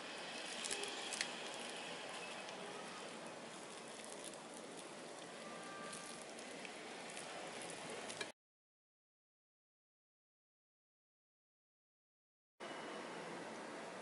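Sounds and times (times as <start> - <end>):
moist crackling of raw meat: 0.0 - 8.3.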